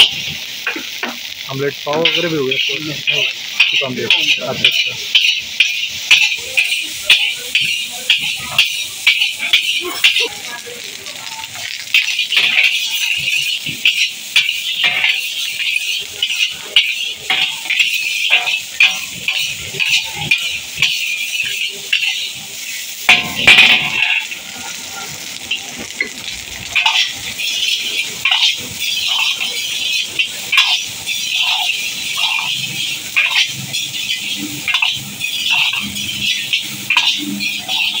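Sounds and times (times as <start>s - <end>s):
rice sizzling in a wok: 0.0s - 38.0s
metal spatula scraping a wok: 2.0s - 10.9s, 11.6s - 38.0s.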